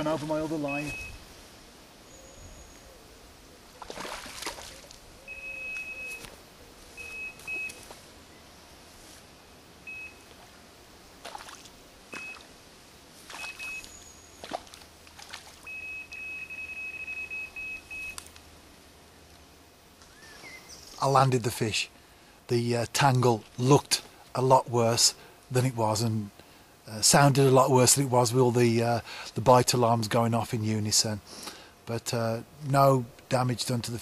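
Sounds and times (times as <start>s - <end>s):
electronic bite alarm beeps: 0.6s - 1.2s, 5.3s - 6.3s, 7.0s - 7.8s, 9.9s - 10.3s, 12.2s - 12.5s, 13.4s - 14.2s, 15.7s - 18.2s
fish splashing at surface: 3.8s - 4.8s.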